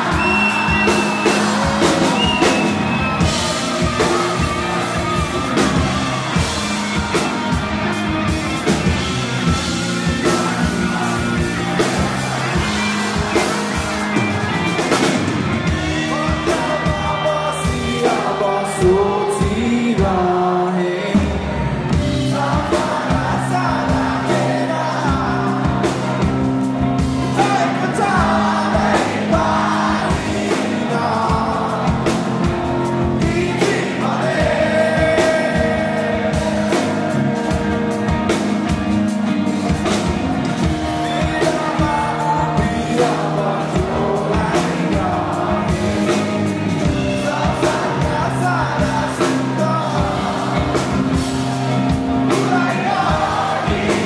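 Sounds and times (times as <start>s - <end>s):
drums beating: 0.0s - 20.4s, 21.1s - 54.0s
bass guitar: 0.0s - 54.0s
electric guitars: 0.0s - 54.0s
live rock band playing: 0.0s - 54.0s
man singing lead vocal: 9.4s - 13.8s, 15.6s - 26.5s, 27.2s - 37.7s, 41.0s - 54.0s.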